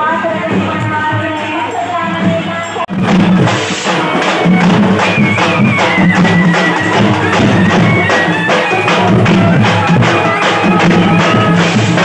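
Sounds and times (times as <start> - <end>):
marching drums beating: 2.2 - 12.0
wind instrument melody: 3.8 - 12.0.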